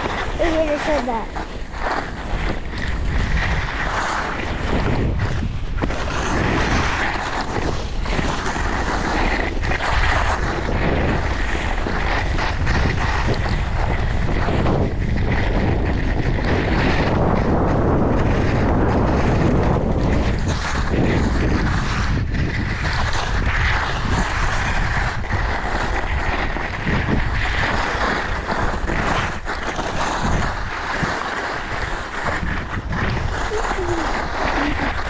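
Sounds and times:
skis scraping on snow: 0.0s - 35.0s
wind rumbling on microphone: 0.0s - 35.0s.

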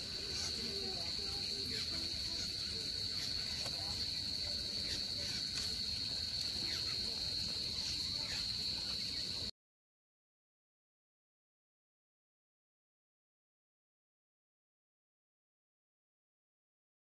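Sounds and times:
insects droning: 0.0s - 9.5s.

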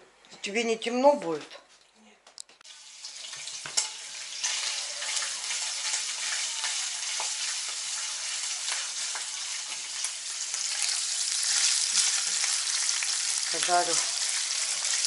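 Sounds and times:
fat sizzling in frying pan: 2.6s - 15.0s
spatula stirring in pan: 3.1s - 13.2s.

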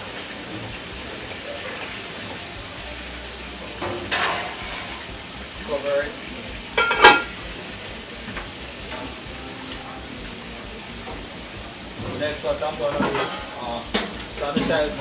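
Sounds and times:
food sizzling in a pan: 0.0s - 15.0s
metal spoon knocking on pan: 6.8s - 7.3s.

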